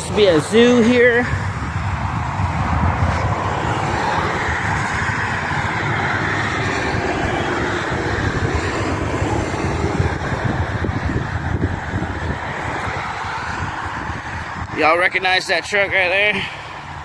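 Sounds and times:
highway traffic rushing: 0:00.0 - 0:17.0.

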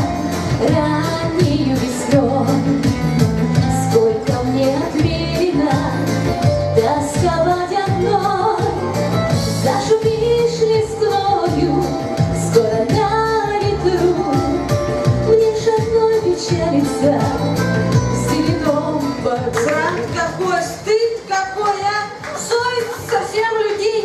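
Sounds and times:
backing music with steady beat: 0:00.0 - 0:21.3
woman singing into microphone: 0:00.0 - 0:24.0.

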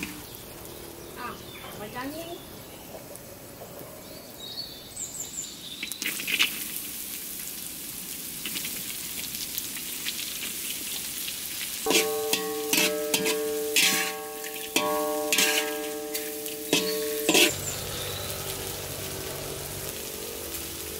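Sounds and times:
vegetables sizzling in hot oil: 0:05.6 - 0:20.9
spatula stirring and scraping: 0:11.9 - 0:17.7
plucked string instrument music: 0:11.9 - 0:20.6.

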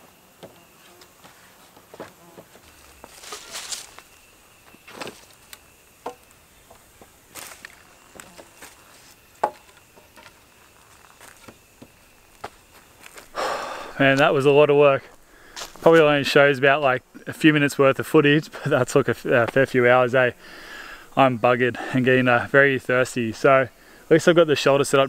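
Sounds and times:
faint insect drone: 0:00.0 - 0:25.0
wooden poles knocking and scraping: 0:01.7 - 0:13.3
rustling in leaf litter: 0:02.5 - 0:05.7, 0:07.1 - 0:09.3.

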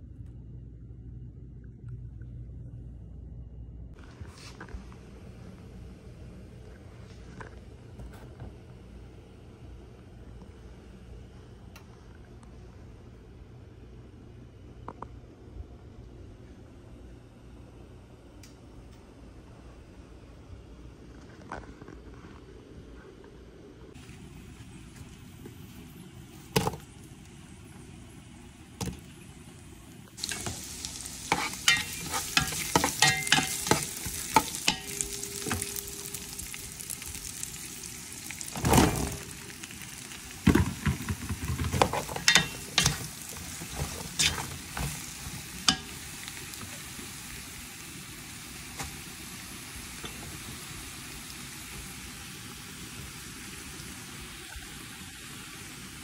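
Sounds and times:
clicks of stirring in a pot: 0:30.2 - 0:35.8, 0:40.5 - 0:46.0
vegetables sizzling in oil: 0:30.2 - 0:56.0.

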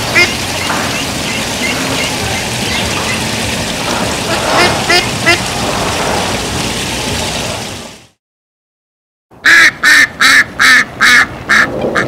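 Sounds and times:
duck quacking loudly: 0:09.4 - 0:12.0.

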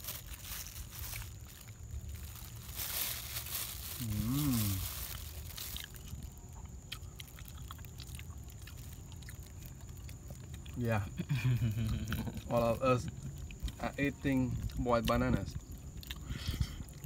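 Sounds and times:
plastic bag crinkling: 0:00.0 - 0:10.9
person humming: 0:04.0 - 0:04.9
monkey chewing: 0:05.8 - 0:17.0.

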